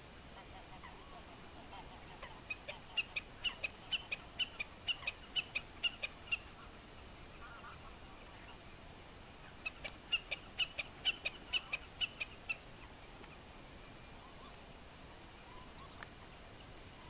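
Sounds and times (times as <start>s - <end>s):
snipe ticking calls: 1.8s - 6.7s, 9.6s - 12.6s.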